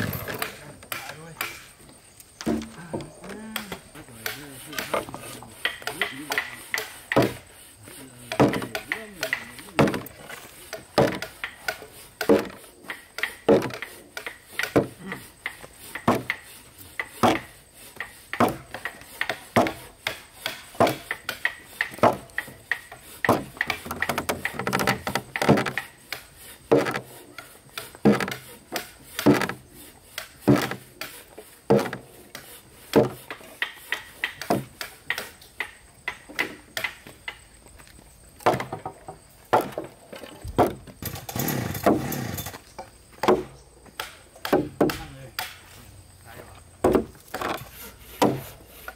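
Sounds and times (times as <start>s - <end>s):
rough continuous noise: 0.0s - 48.9s
tools knocking on timber: 2.4s - 7.4s, 8.3s - 10.1s, 10.9s - 12.6s, 43.2s - 45.5s, 46.8s - 47.6s.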